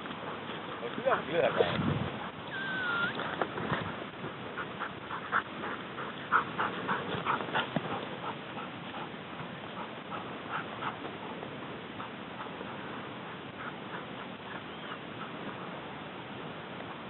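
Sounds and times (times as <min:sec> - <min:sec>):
dog yelping: 0:02.5 - 0:03.2.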